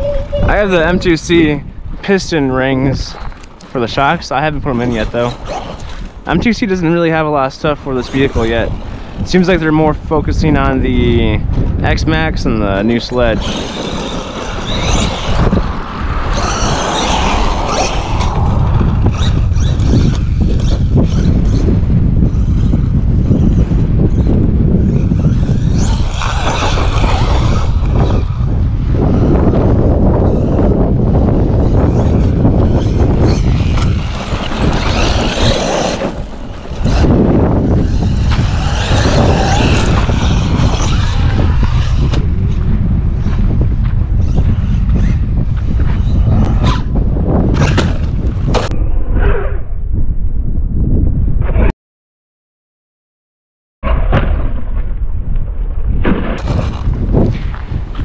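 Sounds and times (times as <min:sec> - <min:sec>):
rc truck electric motor whining: 0:13.3 - 0:15.6, 0:16.2 - 0:42.6.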